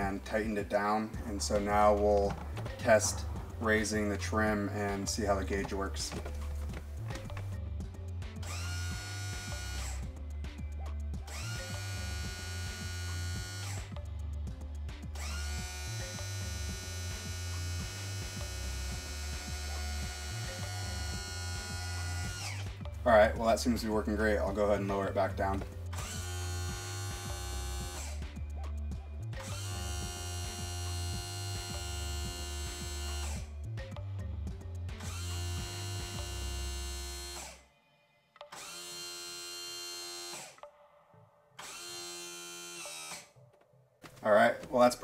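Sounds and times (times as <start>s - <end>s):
electric pump motor humming: 8.3s - 10.2s, 11.2s - 14.0s, 15.0s - 22.9s, 25.9s - 28.3s, 29.3s - 33.6s, 35.0s - 37.6s, 38.6s - 40.6s.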